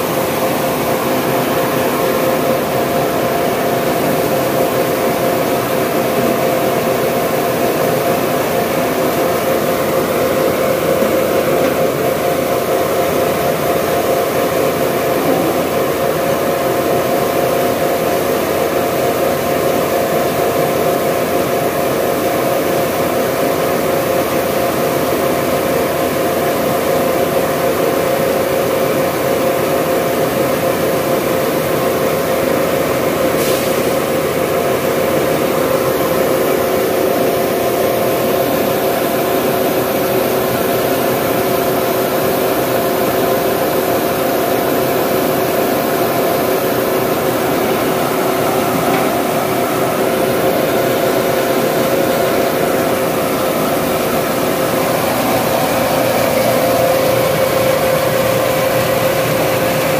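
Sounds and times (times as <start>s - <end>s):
mill machine hum: 0.0s - 59.9s.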